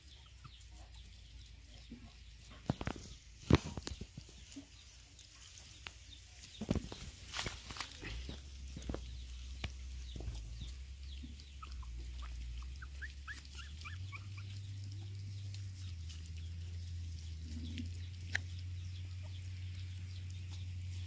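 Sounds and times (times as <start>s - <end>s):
puppies whimpering and squeaking: 0.0s - 4.6s, 10.0s - 16.4s
dry leaves rustling underfoot: 0.0s - 21.0s.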